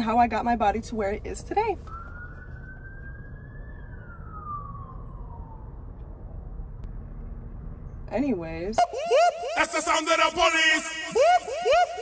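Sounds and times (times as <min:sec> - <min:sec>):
low traffic rumble: 0:00.0 - 0:12.0
police siren wailing: 0:01.8 - 0:06.8, 0:08.8 - 0:12.0.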